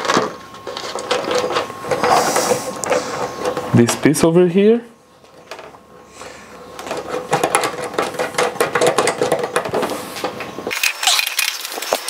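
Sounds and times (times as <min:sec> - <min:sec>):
plastic hardware clicking and rattling: 0:06.8 - 0:09.9.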